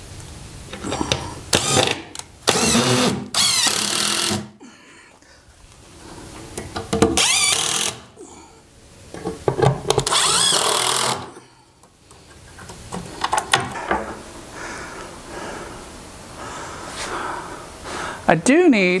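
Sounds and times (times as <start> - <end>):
cordless drill whining: 1.5 - 4.5, 7.2 - 8.1, 10.0 - 11.4.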